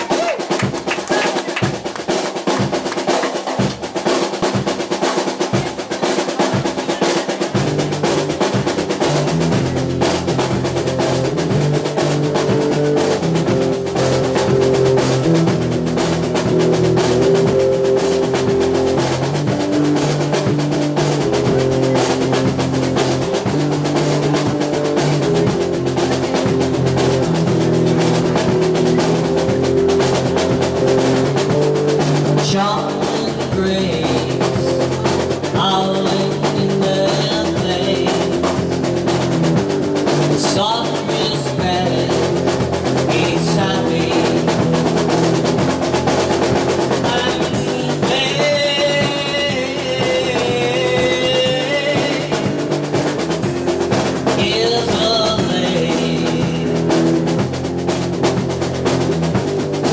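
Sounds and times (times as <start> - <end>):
drum kit: 0.0 - 59.9
electric guitar through amplifier: 7.5 - 59.9
person singing: 17.2 - 39.0, 40.2 - 44.9, 46.9 - 52.9, 54.2 - 57.3.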